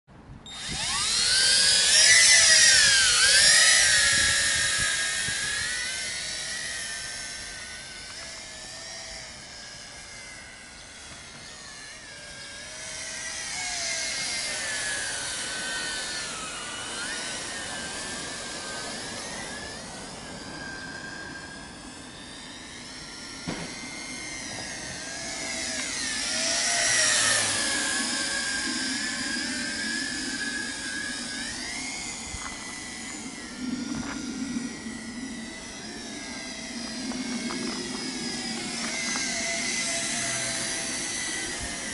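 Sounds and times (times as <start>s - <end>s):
toy drone propellers whining: 0.4s - 41.9s.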